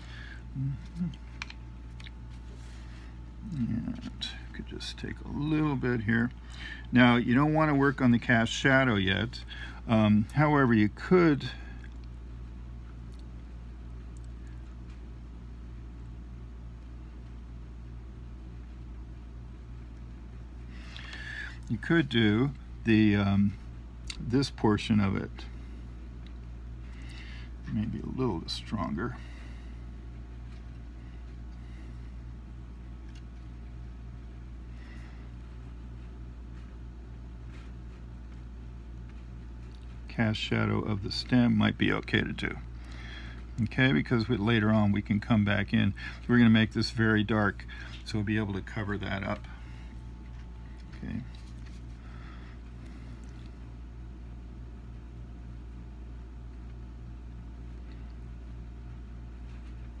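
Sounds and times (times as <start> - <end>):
low background hum: 0.0 - 60.0.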